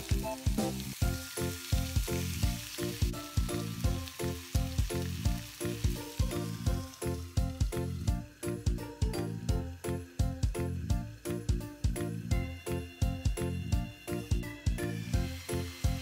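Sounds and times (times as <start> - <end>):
meat sizzling in a frying pan: 0.0 - 16.0
music with steady beat: 0.0 - 16.0.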